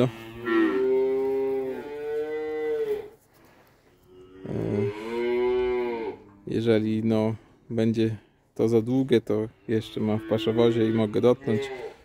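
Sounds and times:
cattle mooing: 0:00.0 - 0:03.1, 0:04.0 - 0:06.4, 0:09.7 - 0:12.0.

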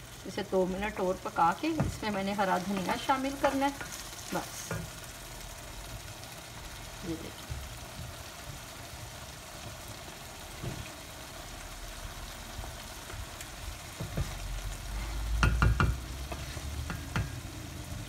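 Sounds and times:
meat sizzling in a pan: 0:00.0 - 0:18.0
wooden spoon stirring: 0:01.5 - 0:05.1, 0:07.3 - 0:11.2, 0:12.5 - 0:17.5
spoon knocking on pan: 0:15.4 - 0:17.4.

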